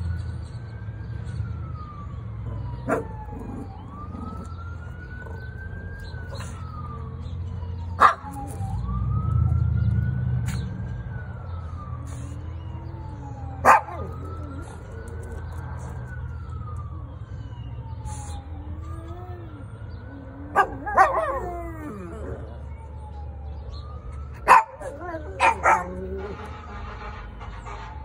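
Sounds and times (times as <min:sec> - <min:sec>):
fire truck wail siren: 0:00.0 - 0:28.0
low engine rumble: 0:00.8 - 0:28.0.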